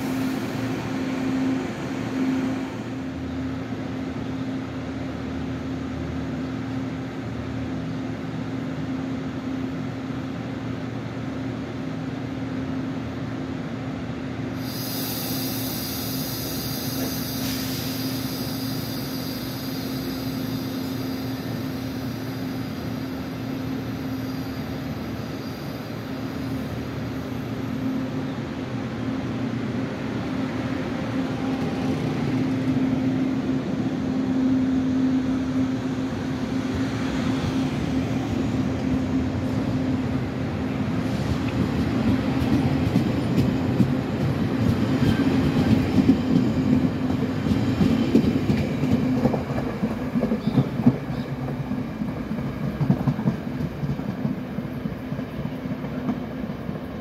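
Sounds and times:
train rumble pulling away: 0.0 - 11.0, 14.4 - 57.0
train electrical hum: 0.0 - 57.0
sharp high hiss: 14.5 - 28.2.

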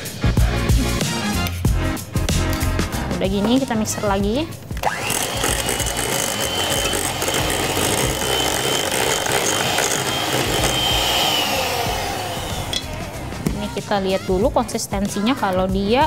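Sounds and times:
electric hand mixer whining: 4.8 - 13.8.

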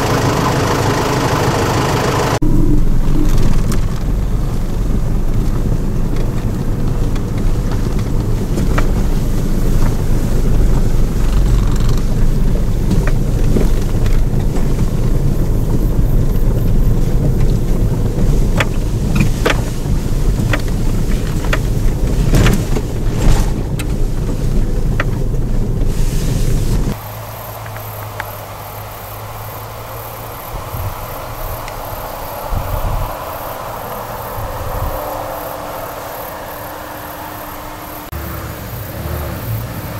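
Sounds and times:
vehicle rumbling on dirt track: 0.0 - 39.9
fast high-pitched pulsing: 2.0 - 4.0
outdoor hiss: 16.8 - 39.9.

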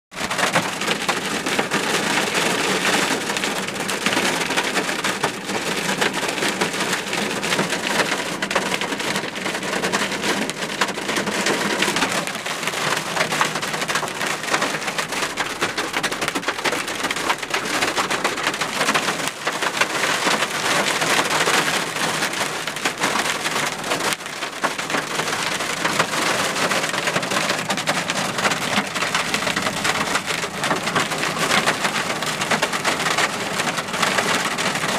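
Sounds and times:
hail and rain pelting a car: 0.1 - 34.9.

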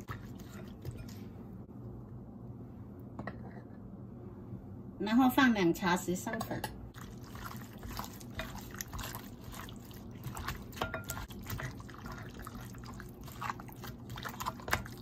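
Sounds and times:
wet squelching of meat in bowl: 0.0 - 1.4, 6.9 - 15.0.

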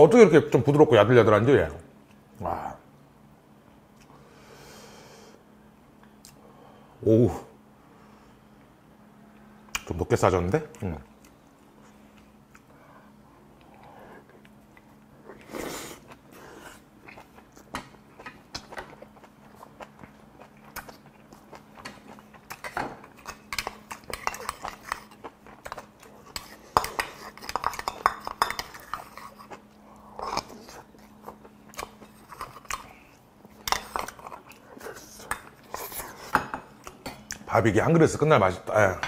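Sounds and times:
close chewing and smacking: 10.7 - 12.8, 13.5 - 37.5.

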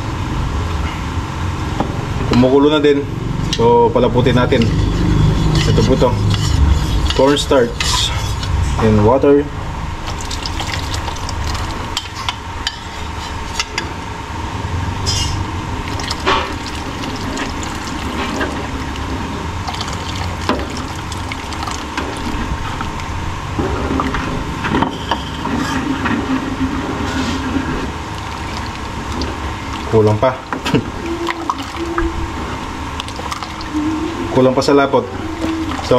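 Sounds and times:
sauce boiling and bubbling: 10.0 - 13.6, 15.6 - 24.8, 25.4 - 35.9.

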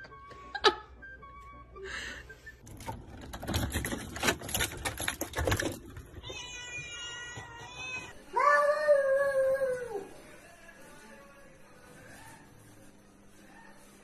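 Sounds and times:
keys jangling in a door lock: 2.6 - 6.1
cat meowing: 6.2 - 8.2.

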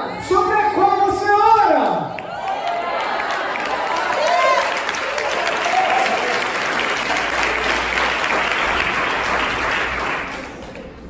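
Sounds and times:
congregation applauding: 2.2 - 11.0.

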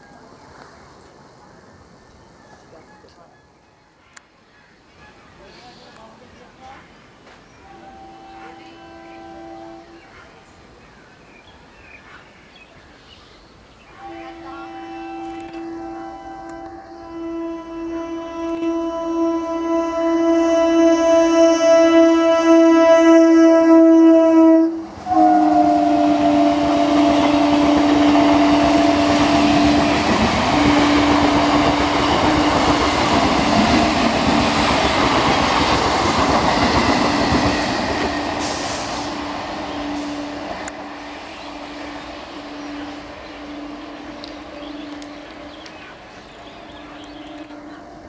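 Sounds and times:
train horn blasts: 7.6 - 10.4, 14.0 - 35.3, 36.4 - 46.0, 46.6 - 48.0
train running and wheel clatter: 14.1 - 16.9, 24.8 - 48.0.

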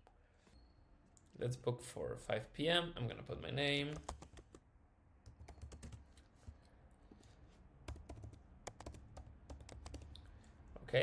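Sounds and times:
typing on computer keyboard: 3.9 - 4.6, 5.2 - 6.1, 7.9 - 10.2.

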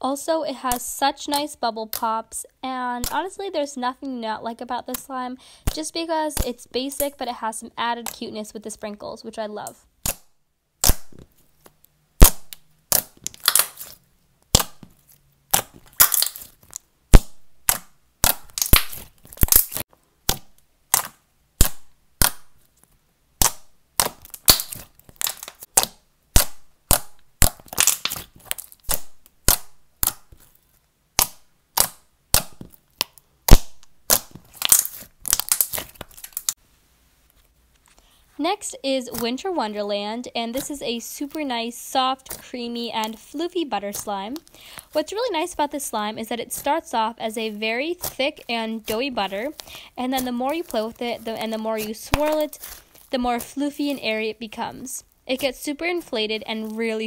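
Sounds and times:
slime bubbles popping: 12.2 - 14.8, 15.5 - 22.5, 23.4 - 30.2.

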